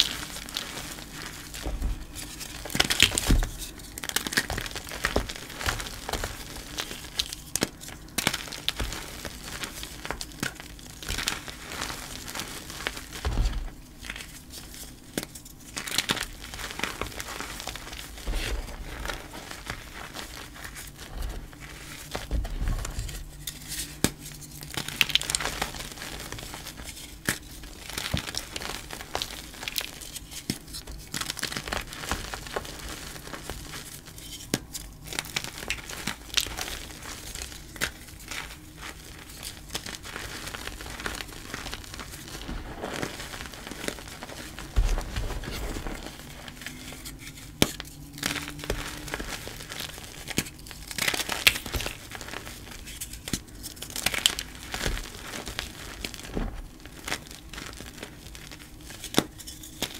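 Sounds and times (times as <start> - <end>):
hands crushing chalk: 0.0 - 59.9.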